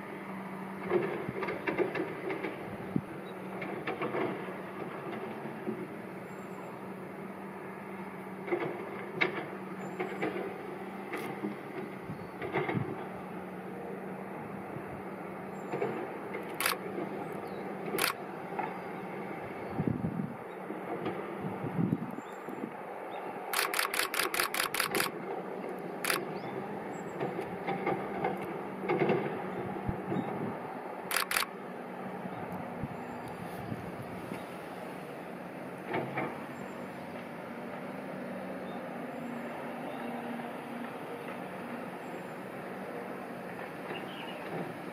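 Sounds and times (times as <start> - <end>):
distant traffic hum: 0.0 - 44.9
sharp clicks and knocks: 15.7 - 17.2, 23.5 - 26.3, 31.1 - 31.5.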